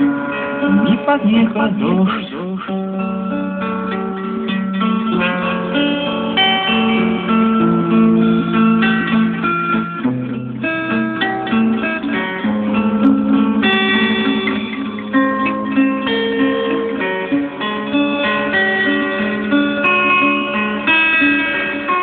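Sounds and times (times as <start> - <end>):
instrumental guitar music: 0.0 - 22.0.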